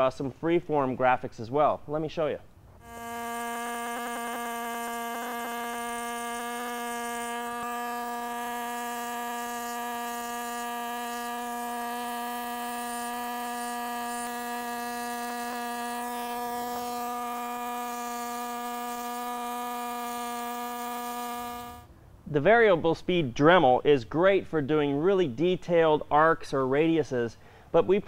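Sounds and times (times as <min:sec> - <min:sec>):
engraving tool whining on concrete: 0:02.8 - 0:21.9.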